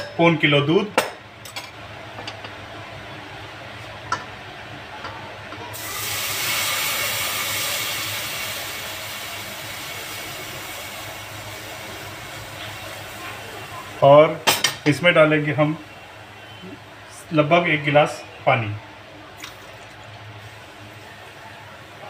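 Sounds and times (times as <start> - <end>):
milk hissing in hot pan: 5.7 - 14.3.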